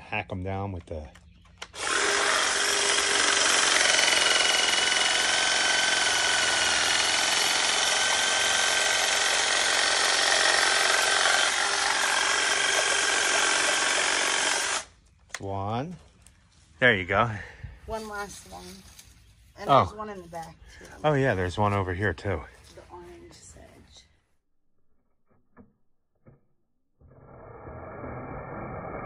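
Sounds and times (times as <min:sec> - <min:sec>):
hedge trimmer cutting grass: 0:01.7 - 0:14.9.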